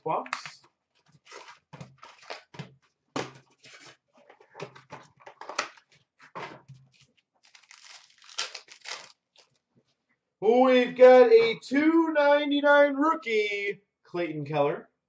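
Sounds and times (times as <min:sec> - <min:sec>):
cards shuffling: 0:00.2 - 0:09.6
wrappers crinkling: 0:00.4 - 0:02.6, 0:06.9 - 0:09.6
paper tearing: 0:01.2 - 0:02.6, 0:06.9 - 0:09.5.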